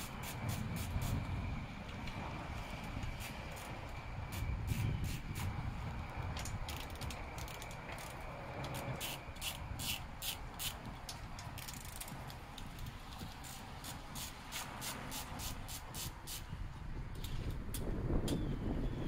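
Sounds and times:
hand ratchet clicking: 6.4 - 16.4.

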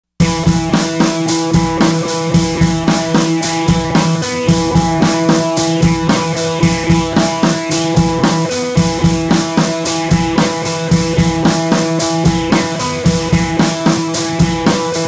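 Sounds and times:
drum kit steady beat: 0.2 - 15.0.

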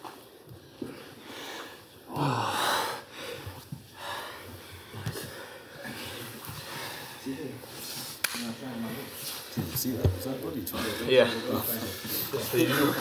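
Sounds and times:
people breathing hard: 0.4 - 8.2, 10.5 - 13.0.

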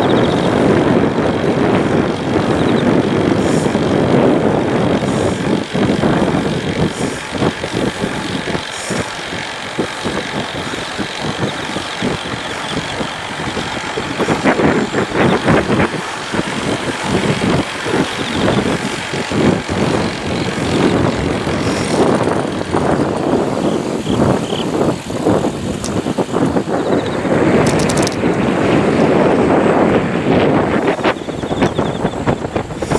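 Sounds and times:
wind buffeting microphone: 0.0 - 32.9.

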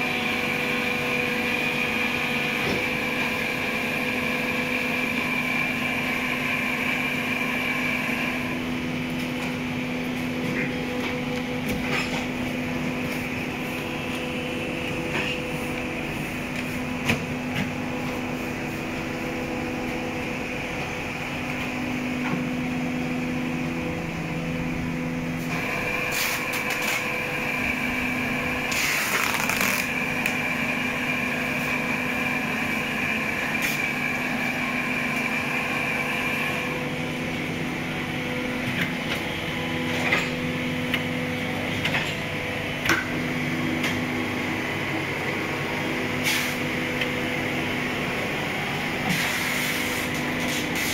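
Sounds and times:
high machine whine: 0.0 - 50.9
machinery humming: 0.0 - 50.9.

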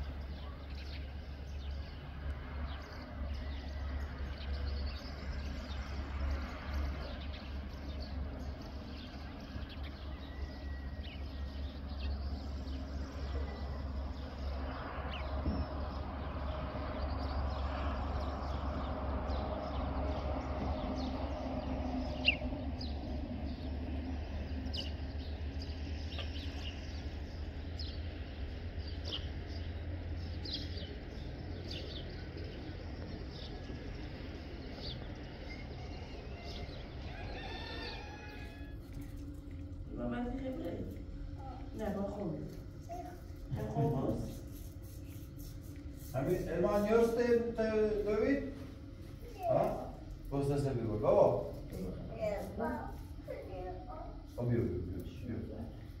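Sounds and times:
bird chirps: 2.7 - 38.7
steady low rumble: 11.0 - 56.0.

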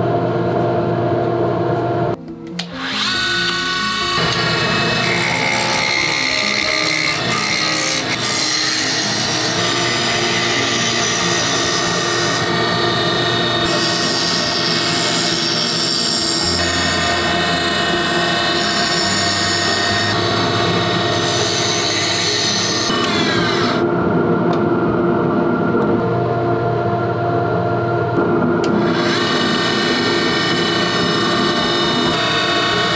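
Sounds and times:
lathe gouge scraping wood: 2.8 - 23.8, 28.8 - 32.9.

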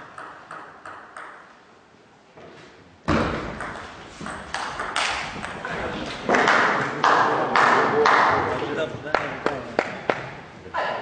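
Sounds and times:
table tennis ball pinging: 0.0 - 1.6, 3.1 - 8.4.

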